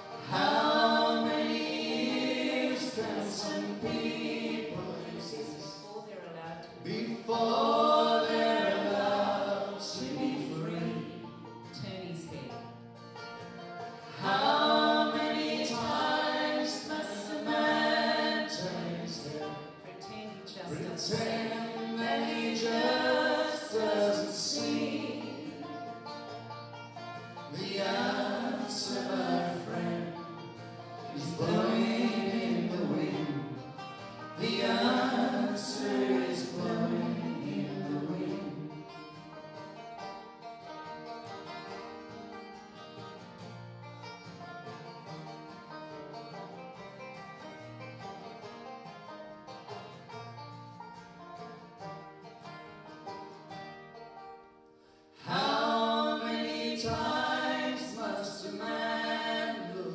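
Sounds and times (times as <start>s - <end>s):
people singing a folk song: 0.0s - 6.0s, 6.7s - 11.9s, 12.5s - 43.5s, 55.0s - 59.9s
acoustic guitar: 0.0s - 59.9s
banjo: 0.0s - 59.9s.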